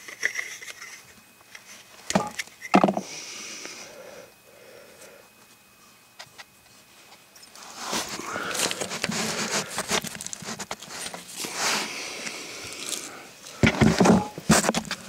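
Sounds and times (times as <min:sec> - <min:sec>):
rusty pipe scraping on gravel: 0:07.6 - 0:11.9.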